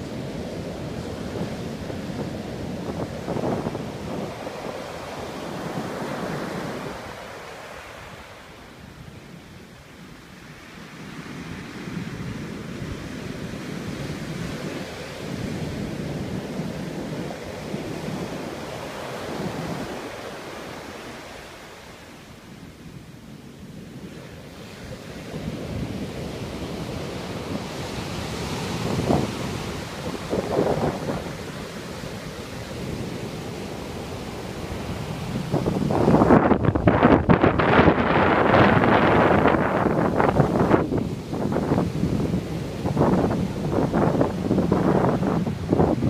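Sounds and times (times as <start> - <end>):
surf breaking on beach: 23.9 - 46.0.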